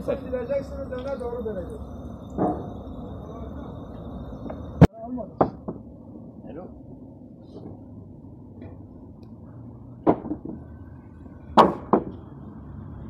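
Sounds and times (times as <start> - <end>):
low steady background noise: 0.0 - 13.0
wooden blocks clunking: 10.0 - 10.6.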